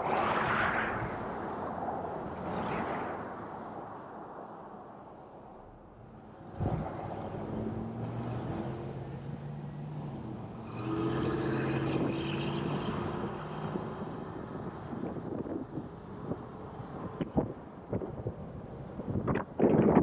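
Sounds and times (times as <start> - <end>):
tyre and road noise: 0.0 - 20.0
vehicle engine hum: 5.6 - 19.0.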